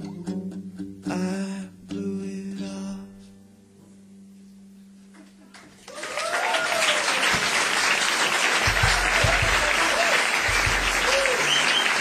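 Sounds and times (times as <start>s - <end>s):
audience applauding: 5.5s - 12.0s
whoops: 5.8s - 7.6s, 8.8s - 12.0s.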